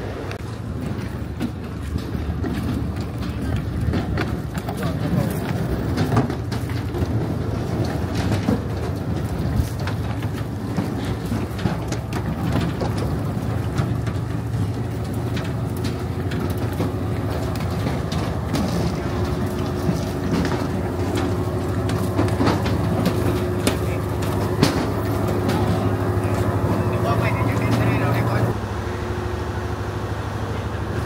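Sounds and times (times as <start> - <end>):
engine humming: 0.0 - 31.0
clatter and clicks: 0.3 - 28.6.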